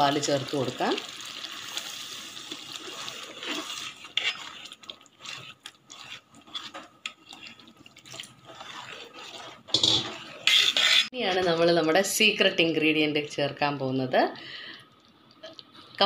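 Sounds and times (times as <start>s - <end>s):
ladle scraping a metal pot: 1.7s - 11.2s.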